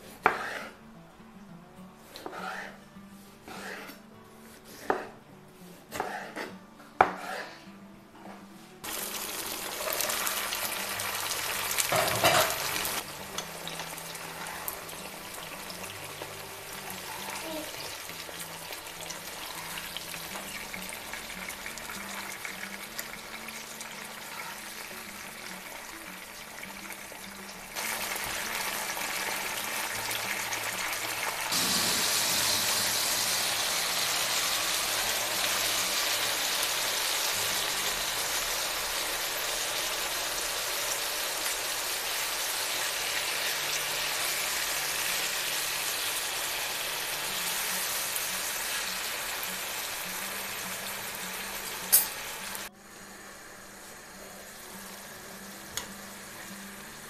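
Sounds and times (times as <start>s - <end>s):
knife chopping on wooden board: 0.2s - 0.7s, 4.7s - 5.2s, 5.9s - 7.4s
peppers sizzling in oil: 8.8s - 57.0s.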